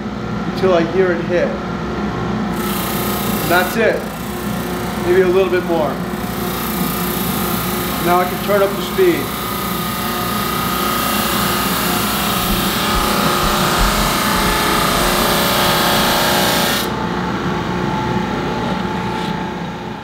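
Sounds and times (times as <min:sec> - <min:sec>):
drum sander motor running: 0:02.5 - 0:17.0.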